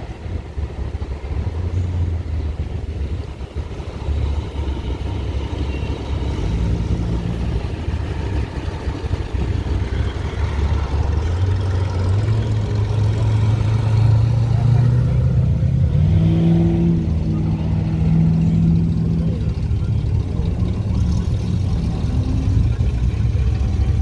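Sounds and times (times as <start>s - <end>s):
cars driving past: 0.0s - 24.0s.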